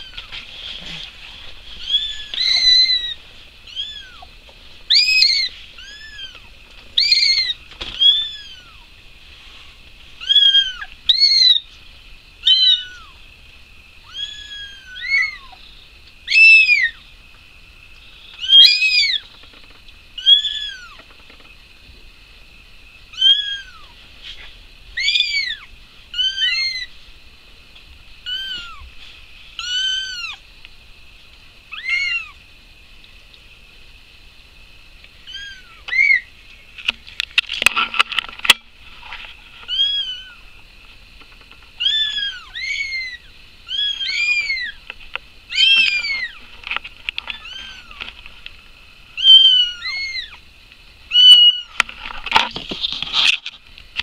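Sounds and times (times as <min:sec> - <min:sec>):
scratchy rustle: 0:00.0 - 0:08.5, 0:23.8 - 0:25.5, 0:36.6 - 0:42.2, 0:51.6 - 0:54.0
kittens mewing: 0:01.8 - 0:04.3, 0:04.9 - 0:08.9, 0:25.0 - 0:26.9, 0:35.3 - 0:36.2, 0:41.8 - 0:44.8, 0:49.2 - 0:50.4, 0:51.1 - 0:51.7.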